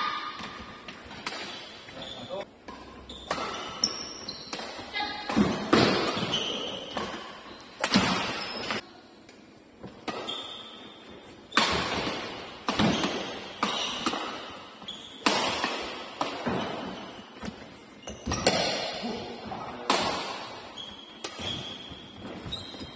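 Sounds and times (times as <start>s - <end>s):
shoe squeaks: 1.9s - 2.4s, 3.0s - 5.1s, 6.1s - 8.8s, 10.2s - 11.6s, 13.7s - 14.0s, 14.8s - 15.2s, 16.6s - 18.5s, 20.6s - 22.9s
badminton racket hitting shuttlecock: 2.7s - 8.8s, 9.9s - 10.8s, 11.5s - 19.1s, 19.8s - 22.8s.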